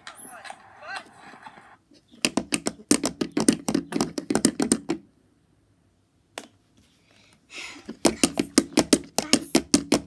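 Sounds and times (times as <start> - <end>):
plastic toy hooves tapping: 2.2 - 5.0, 7.9 - 10.0.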